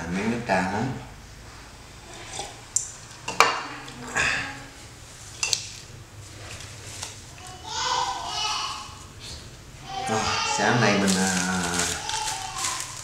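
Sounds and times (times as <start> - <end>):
cups clinking on glass table: 3.2 - 4.0.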